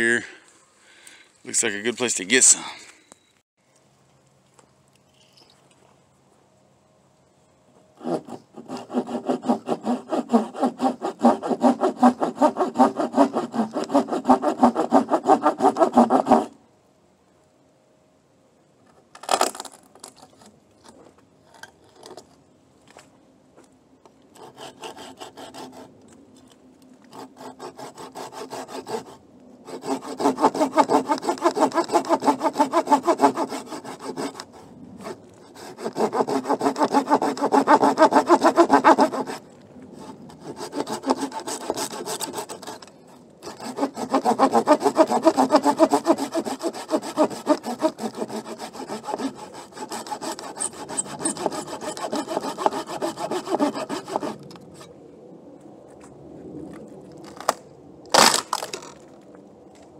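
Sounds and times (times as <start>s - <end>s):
hand saw cutting wood: 8.0s - 16.6s, 24.4s - 26.0s, 27.1s - 39.4s, 40.0s - 54.9s
wood cracking: 57.1s - 59.2s.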